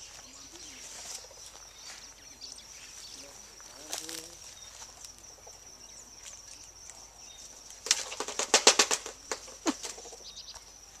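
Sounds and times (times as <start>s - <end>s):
birds clattering in ceramic basin: 7.7s - 10.7s.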